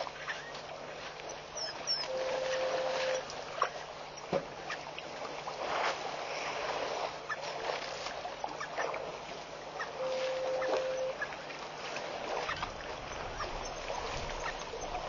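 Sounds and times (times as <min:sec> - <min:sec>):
water splashing: 0:00.0 - 0:15.0
flat tone: 0:02.1 - 0:03.2, 0:10.0 - 0:11.2.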